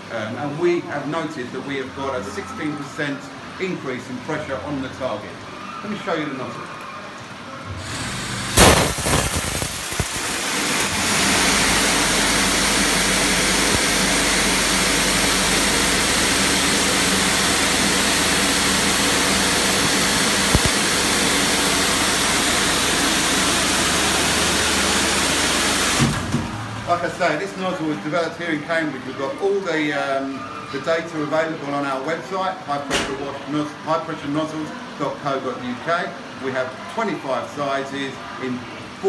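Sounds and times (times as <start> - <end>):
high-pressure water jet hissing: 7.8 - 26.2.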